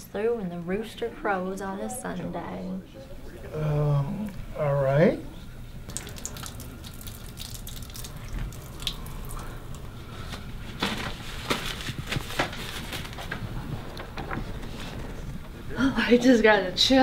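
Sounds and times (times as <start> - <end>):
water running from sink faucet: 5.9 - 9.8
paper towel rustling: 9.9 - 15.6.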